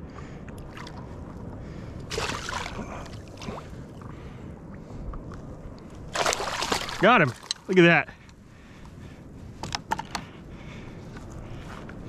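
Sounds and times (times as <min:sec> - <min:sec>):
water splashing: 0:00.6 - 0:01.4, 0:02.1 - 0:04.4, 0:06.0 - 0:07.9.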